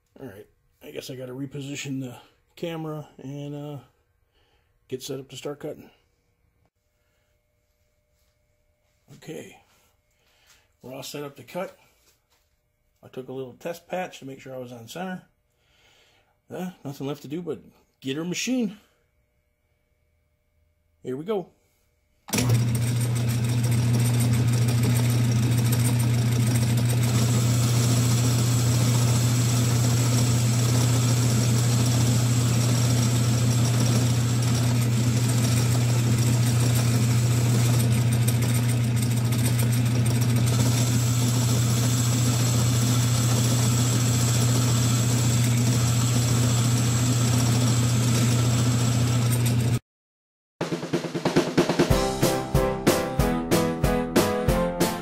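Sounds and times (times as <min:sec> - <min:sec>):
faint high whine: 0:04.9 - 0:15.5
metal lathe motor hum: 0:22.3 - 0:49.8.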